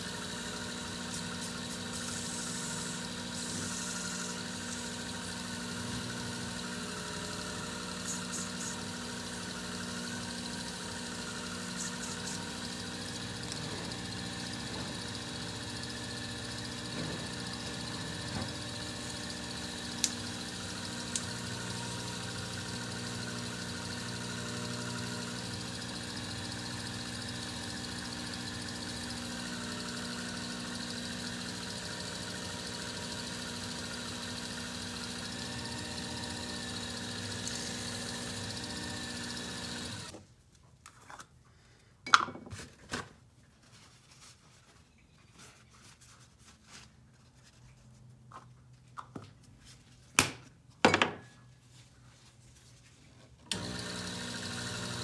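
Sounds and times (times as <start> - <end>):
lathe motor humming: 0.0 - 40.1, 53.5 - 55.0.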